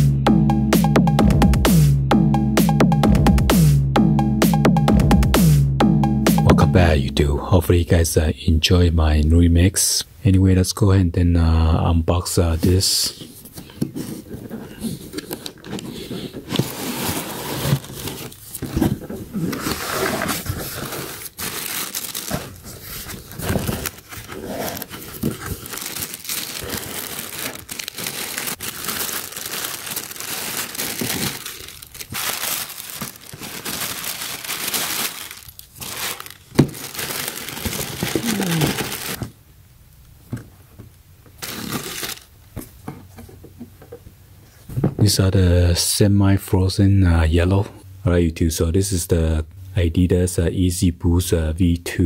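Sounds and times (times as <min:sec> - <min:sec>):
tissue paper crinkling: 0:14.0 - 0:39.2, 0:41.4 - 0:42.3.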